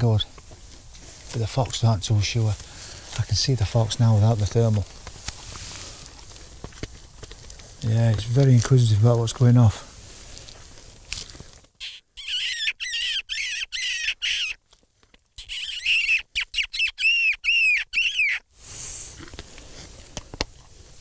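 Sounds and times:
high-pitched mouth squeals: 0:11.8 - 0:14.6, 0:15.4 - 0:18.5.

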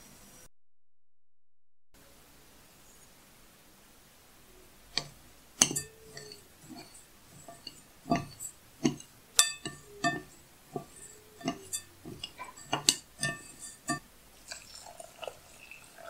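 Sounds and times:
spoon stirring grain in glass bowl: 0:04.9 - 0:16.0
spoon clinking against glass: 0:05.0 - 0:16.0.

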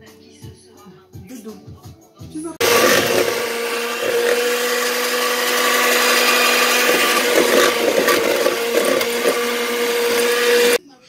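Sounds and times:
electric hand mixer whining: 0:02.6 - 0:10.8.

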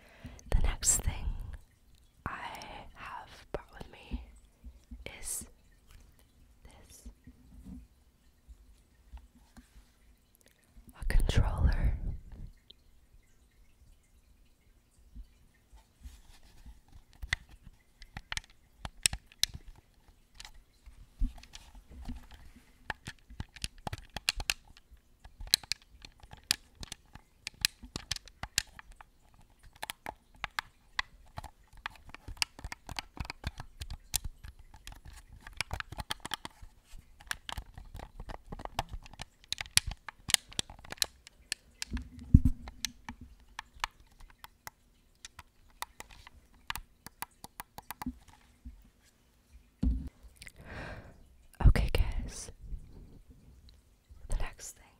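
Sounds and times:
scratching on controller: 0:21.2 - 0:44.6
knock on controller: 0:49.8 - 0:50.1.

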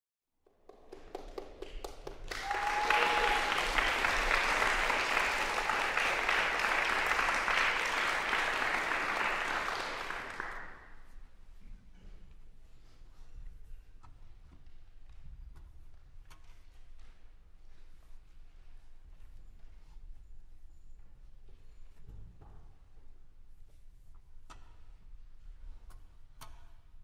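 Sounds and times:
audience applause: 0:00.9 - 0:10.9.

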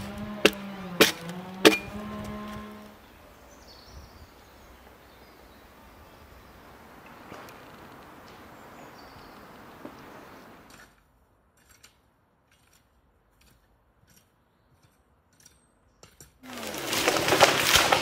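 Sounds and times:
rake scratching soil: 0:00.0 - 0:03.0, 0:16.2 - 0:18.0
outdoor background noise: 0:00.0 - 0:18.0
bird chirp: 0:03.0 - 0:07.6, 0:08.2 - 0:10.6.

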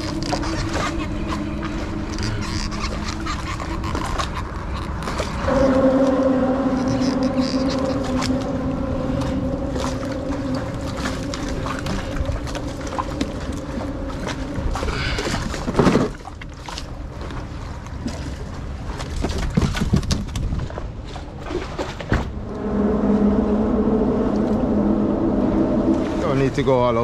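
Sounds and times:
gear clicking and knocking in boat: 0:00.0 - 0:05.6, 0:10.9 - 0:22.3
low hum: 0:00.0 - 0:18.0, 0:21.2 - 0:27.0
water noise around kayak: 0:00.0 - 0:27.0.

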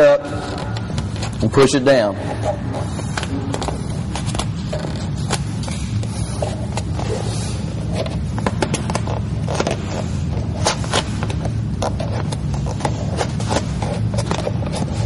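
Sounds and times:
low hum: 0:00.0 - 0:15.0
squeegee scraping vinyl film: 0:00.0 - 0:15.0.

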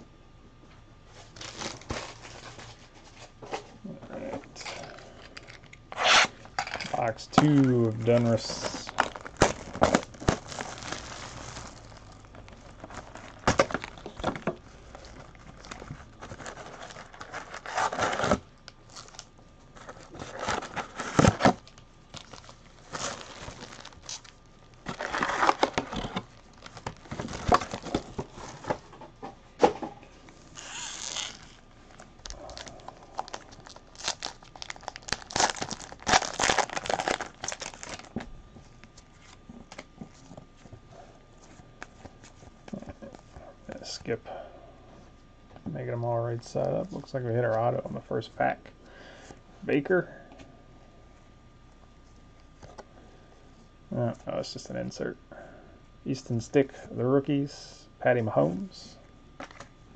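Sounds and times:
plastic wrapping tearing and crinkling: 0:01.2 - 0:02.8, 0:05.4 - 0:28.8, 0:30.5 - 0:40.4.

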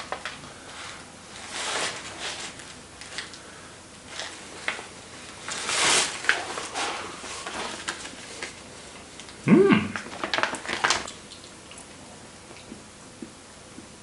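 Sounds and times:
plastic pouch crinkling: 0:10.0 - 0:11.2.

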